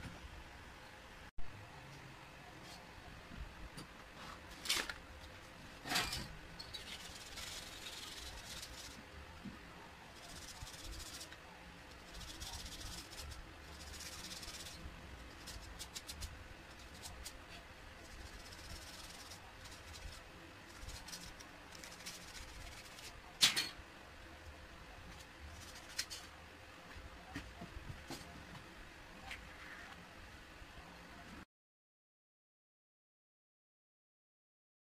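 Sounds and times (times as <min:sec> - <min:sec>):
sandpaper rubbing: 0:06.8 - 0:09.0, 0:10.1 - 0:23.3.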